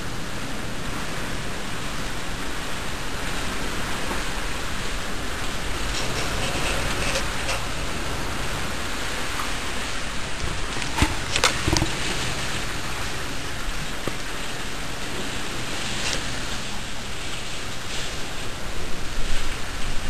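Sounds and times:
heavy rain pouring: 0.0 - 20.0.

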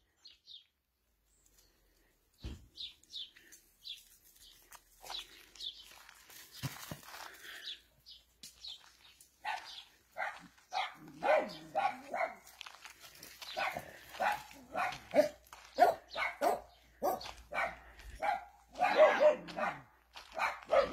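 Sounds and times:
dog barking: 9.4 - 12.5, 13.5 - 20.9.

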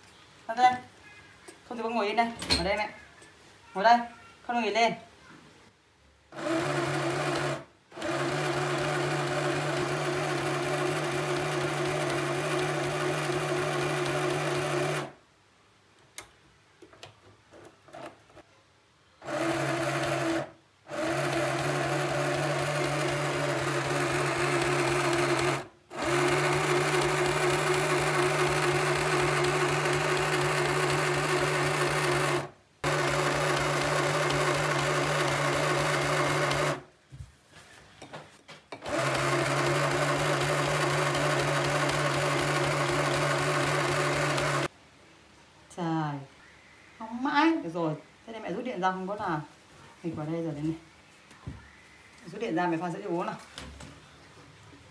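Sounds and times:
sewing machine stitching: 6.4 - 15.1, 19.2 - 36.8, 38.8 - 44.7.

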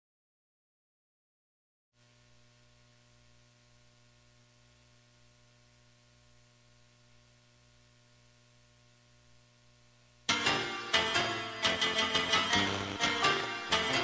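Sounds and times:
faint electrical hum: 2.0 - 14.0
low hiss: 2.0 - 14.0.

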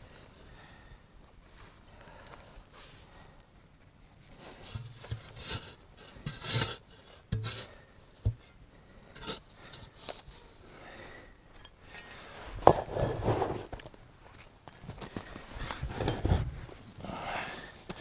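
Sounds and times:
shovel scraping packed earth: 4.5 - 7.8, 12.2 - 13.9.

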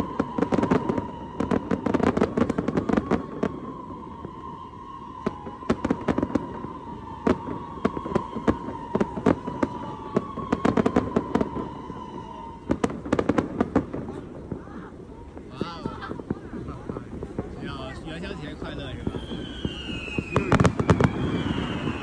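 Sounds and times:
fireworks bangs and crackles: 0.0 - 22.0.

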